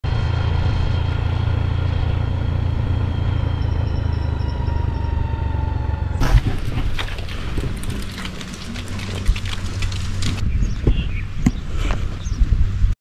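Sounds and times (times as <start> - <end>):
sudden thump: 6.2 - 7.1.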